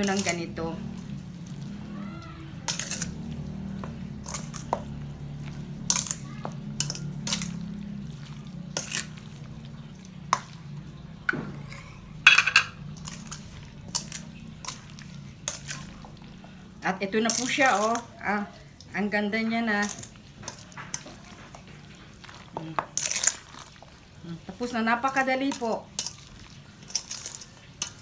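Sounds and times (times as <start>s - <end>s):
spatula scraping metal bowl: 2.7s - 3.2s.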